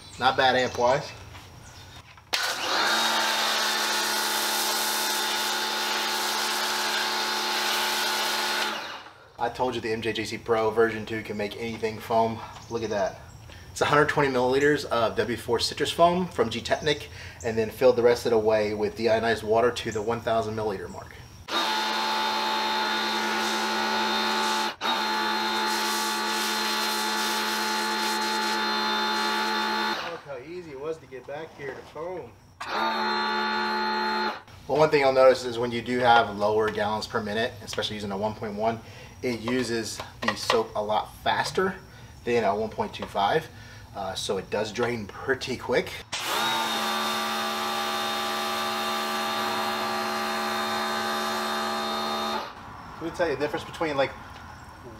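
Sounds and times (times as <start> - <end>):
pressure washer pump and motor hum: 2.3 - 9.3, 21.5 - 30.4, 32.6 - 35.2, 46.1 - 52.7
foam cannon spraying hiss: 25.6 - 28.6.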